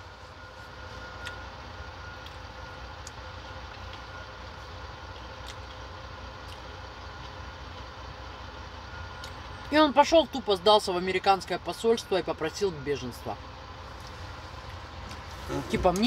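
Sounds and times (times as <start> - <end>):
truck diesel engine idling: 0.0 - 16.0.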